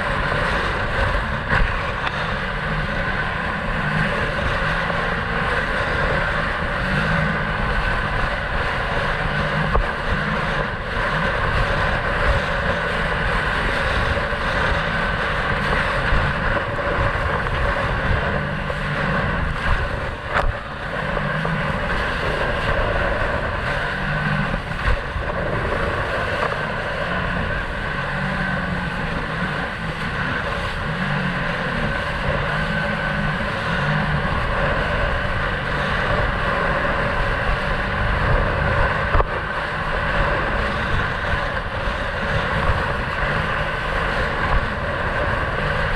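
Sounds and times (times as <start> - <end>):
jet ski engine drone: 0.0 - 45.9
wind on microphone: 0.0 - 45.9.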